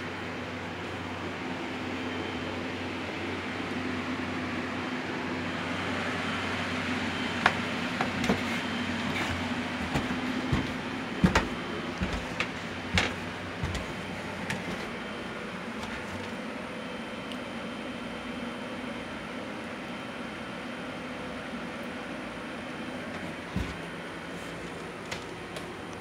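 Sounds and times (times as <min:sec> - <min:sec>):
steady mechanical hum: 0:00.0 - 0:26.0
footsteps on wooden stairs: 0:07.4 - 0:15.0, 0:15.7 - 0:16.4, 0:23.2 - 0:23.9.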